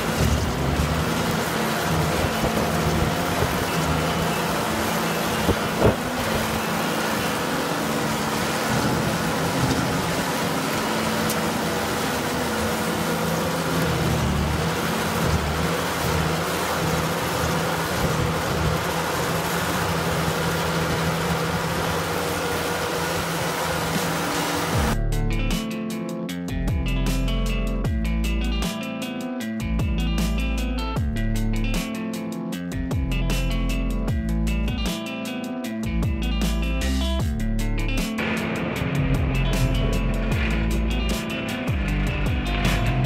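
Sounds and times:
cutter wheel grinding stump: 0.0s - 25.0s
stump grinder engine droning: 0.0s - 25.0s, 38.2s - 43.0s.

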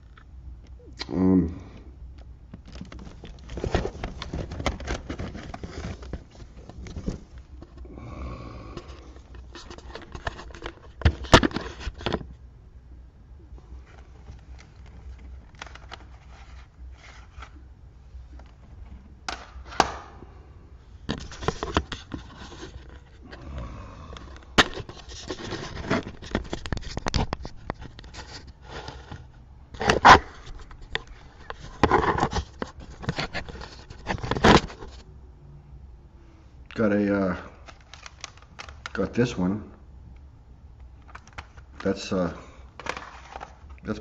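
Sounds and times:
digging through box of cd cases: 2.6s - 7.8s, 8.9s - 12.2s, 21.1s - 23.2s, 24.1s - 35.0s, 37.6s - 39.1s, 41.0s - 44.0s.

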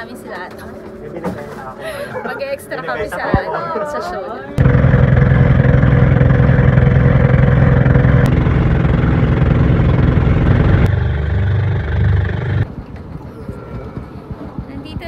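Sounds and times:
boat engine droning: 4.6s - 12.8s.

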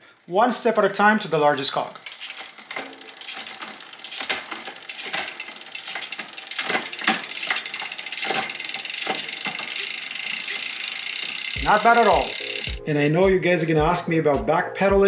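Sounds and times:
bicycle chain running: 1.6s - 12.8s.

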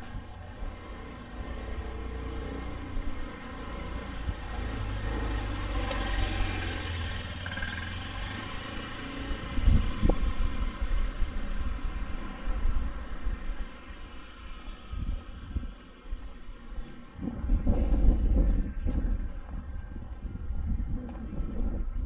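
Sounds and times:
motor vehicle passing by: 0.6s - 13.3s
low rumbling thumps: 17.2s - 22.0s.

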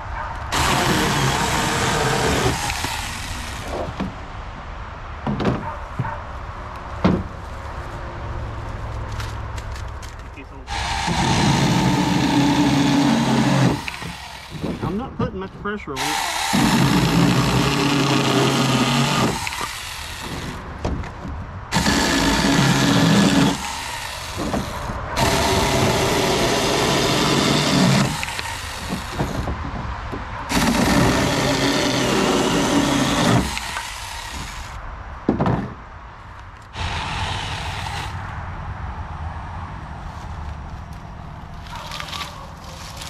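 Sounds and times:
chain cutting wood: 0.4s - 4.0s, 9.2s - 15.0s, 16.0s - 20.6s, 21.7s - 29.6s, 30.5s - 34.8s, 36.7s - 38.2s
electric chainsaw motor whine: 10.7s - 14.8s, 16.0s - 20.6s, 36.8s - 38.2s.

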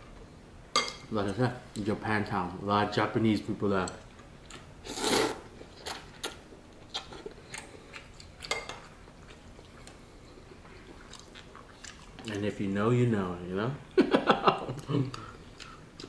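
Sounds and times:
slurping noodles: 4.8s - 5.5s.

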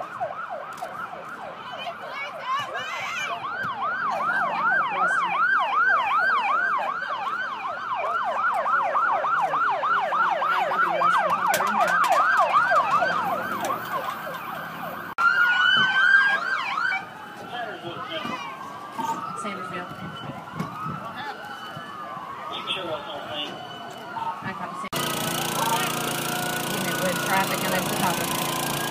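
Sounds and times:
siren wailing: 0.0s - 28.9s
siren yelping: 0.0s - 28.9s.

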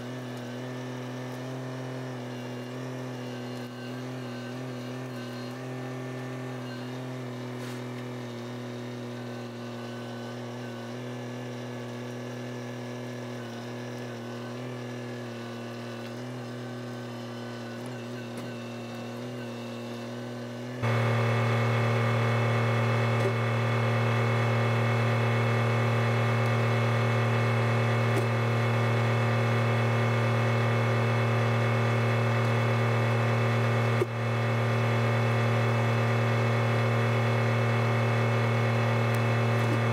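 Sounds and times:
tractor diesel engine running: 20.8s - 39.9s.

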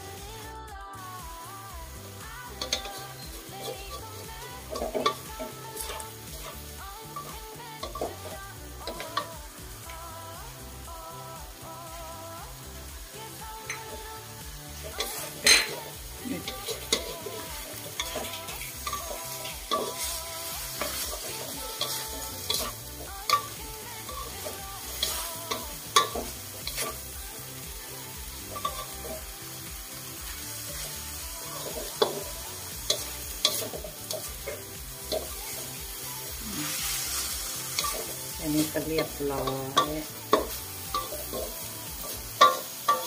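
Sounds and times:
food sizzling: 0.0s - 43.0s
spatula scraping a wok: 2.5s - 9.3s, 14.7s - 27.2s, 28.2s - 29.3s, 30.1s - 43.0s.

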